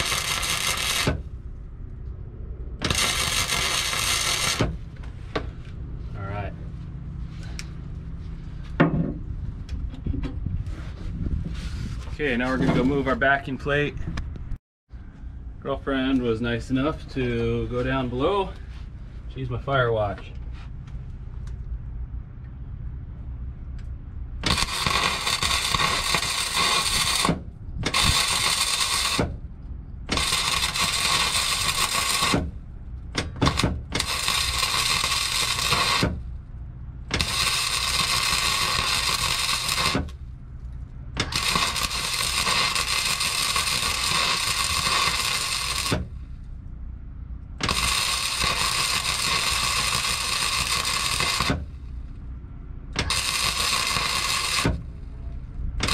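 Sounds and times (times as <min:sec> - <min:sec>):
welding arc sizzling: 0:00.0 - 0:01.3, 0:02.8 - 0:05.0, 0:24.4 - 0:29.4, 0:30.1 - 0:36.3, 0:37.0 - 0:40.2, 0:41.1 - 0:46.4, 0:47.6 - 0:52.0, 0:53.0 - 0:55.1.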